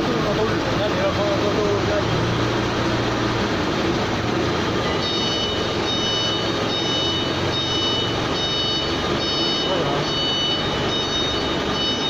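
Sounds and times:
electronic warning beeps: 4.8s - 12.0s.

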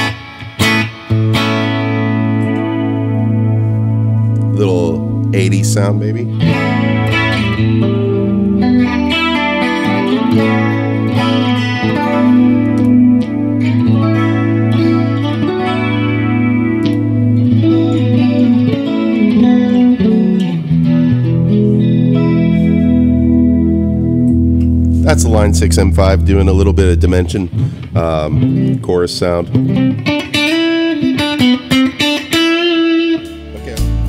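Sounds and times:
clean electric guitar chords: 0.0s - 34.0s.

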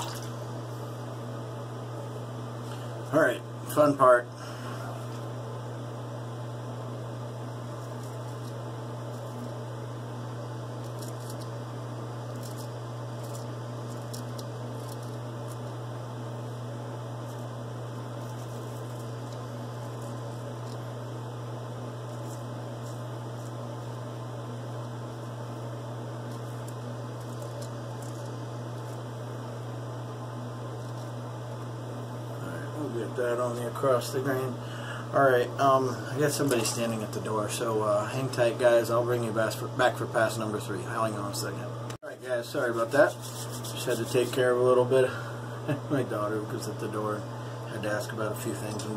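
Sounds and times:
steady low hum: 0.0s - 48.9s
razor scraping stubble: 7.6s - 9.7s, 10.6s - 16.0s, 17.2s - 21.1s, 21.9s - 29.5s, 42.5s - 44.9s.

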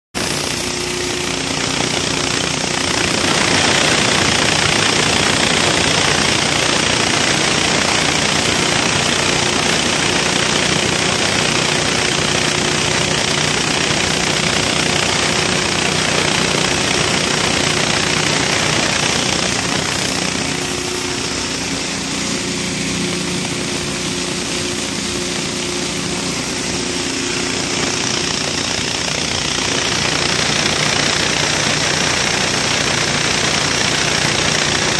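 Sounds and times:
engine-driven grinding mill: 0.2s - 34.9s.

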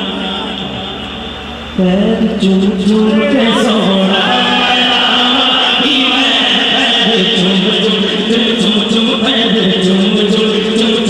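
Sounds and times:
men chanting in unison: 3.0s - 11.0s.

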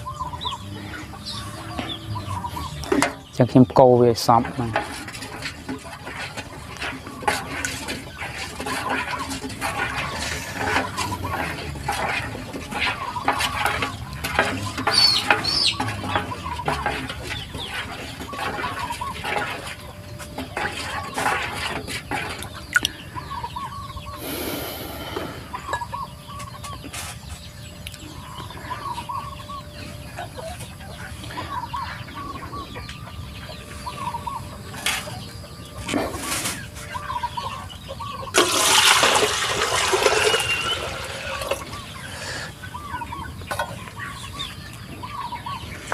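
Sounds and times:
chickens clucking: 0.0s - 45.9s
stick stirring liquid in basin: 1.3s - 23.0s, 38.3s - 41.9s.

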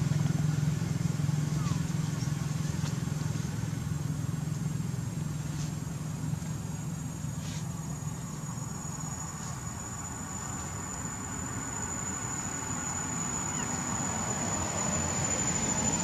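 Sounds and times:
engine humming: 0.0s - 16.0s
thin high whine: 6.8s - 16.0s.

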